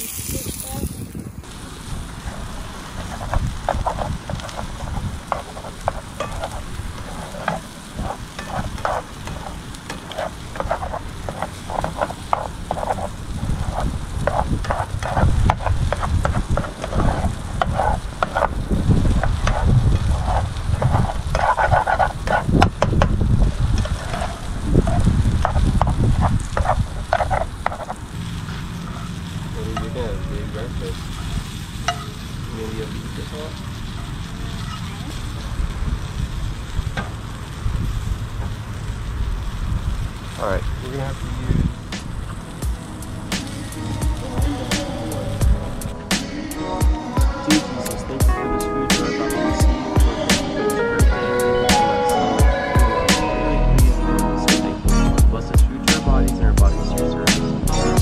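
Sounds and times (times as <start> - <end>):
food sizzling: 0.0 - 58.0
low rumble: 0.3 - 48.4, 52.4 - 58.0
spatula scraping frying pan: 2.3 - 23.1, 23.7 - 29.2.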